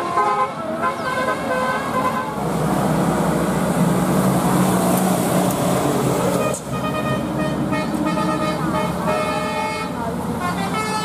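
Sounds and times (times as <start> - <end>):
multi-tone bus horn melody: 0.0 - 2.4, 6.3 - 11.0
bus engine and tyres droning: 0.0 - 11.0.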